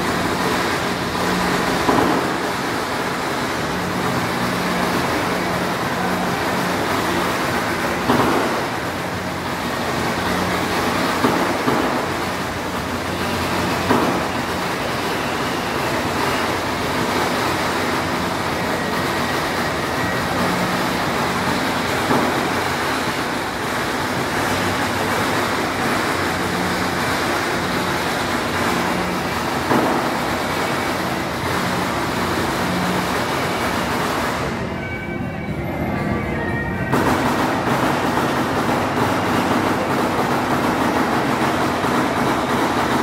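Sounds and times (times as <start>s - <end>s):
sharp knocks: 1.6s - 2.6s, 13.7s - 14.4s, 28.6s - 30.7s.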